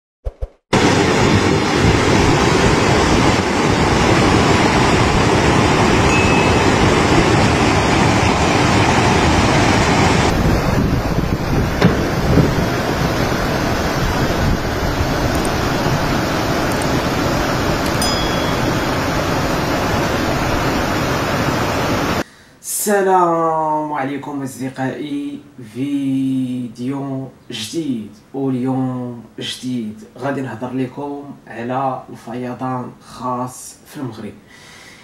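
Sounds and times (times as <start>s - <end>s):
flood water rushing: 0.8s - 22.2s.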